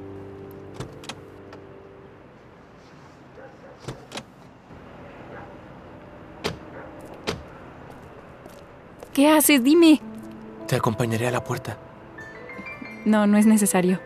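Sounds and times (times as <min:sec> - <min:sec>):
car door latch clicks: 0:03.8 - 0:04.3.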